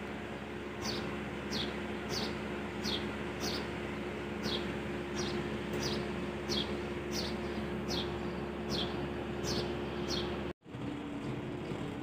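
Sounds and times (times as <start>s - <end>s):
washing machine hum: 0.0s - 12.0s
bird chirping: 0.8s - 3.7s, 4.4s - 10.4s.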